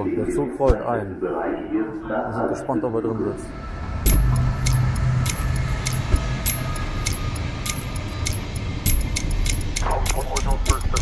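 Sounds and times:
train rumbling: 0:02.9 - 0:11.0.

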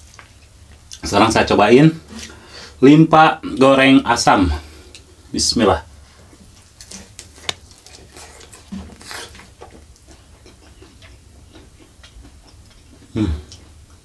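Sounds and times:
wet chewing mouth sounds: 0:06.8 - 0:14.0.

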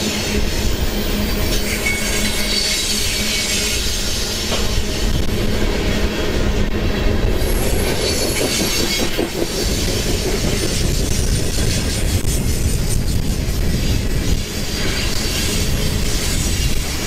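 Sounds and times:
train wheels clattering on rails: 0:00.0 - 0:17.0
faint high wheel squeal: 0:01.4 - 0:04.2.

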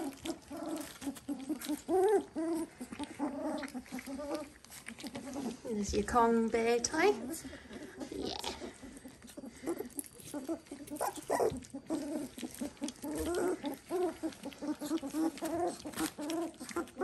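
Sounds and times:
puppies grunting and whining: 0:00.0 - 0:17.0.

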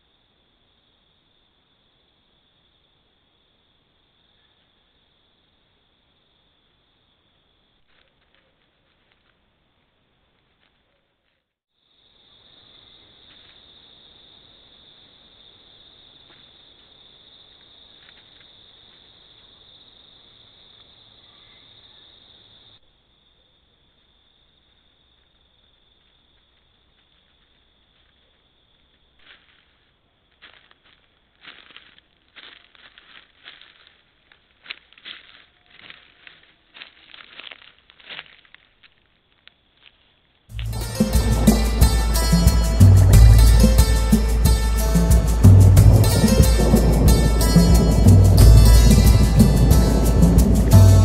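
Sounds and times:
crickets trilling: 0:00.0 - 0:10.7, 0:11.7 - 0:51.0
dry leaves rustling: 0:29.1 - 0:51.0.

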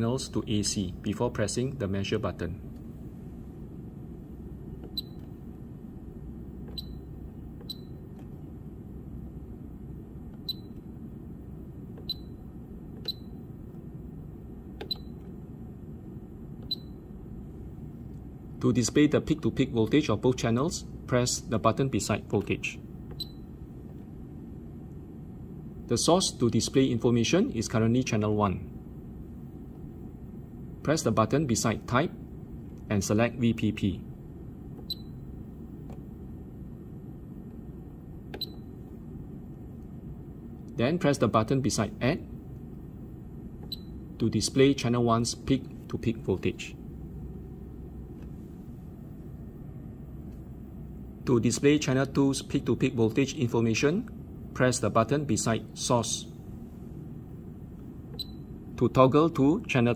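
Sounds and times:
low background hum: 0:00.0 - 0:59.9
short high key-press beeps: 0:04.8 - 0:05.4, 0:06.6 - 0:08.1, 0:10.4 - 0:10.9, 0:12.0 - 0:13.4, 0:14.8 - 0:15.3, 0:16.6 - 0:17.0, 0:23.1 - 0:23.5, 0:34.8 - 0:35.3, 0:38.3 - 0:38.7, 0:43.6 - 0:44.1, 0:58.1 - 0:58.5
button clicks: 0:14.8 - 0:15.3, 0:38.3 - 0:38.7.

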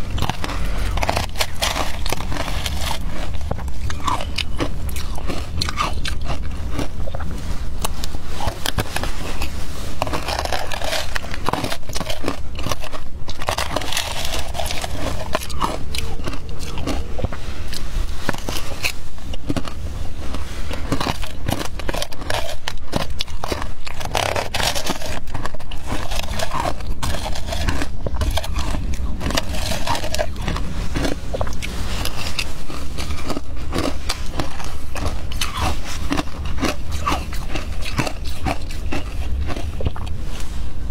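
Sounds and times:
chewing crunchy ice: 0:00.0 - 0:40.9
low rumble: 0:00.0 - 0:40.9
metal spoon scraping plastic bowl: 0:20.3 - 0:38.7.

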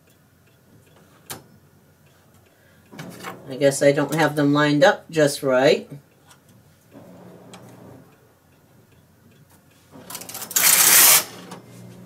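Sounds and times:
knitting machine carriage sliding: 0:10.0 - 0:11.9.

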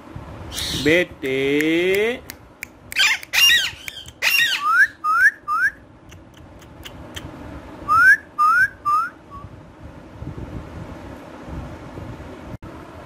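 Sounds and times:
parakeets whistling calls: 0:00.5 - 0:01.0, 0:03.0 - 0:05.8, 0:07.9 - 0:09.4.

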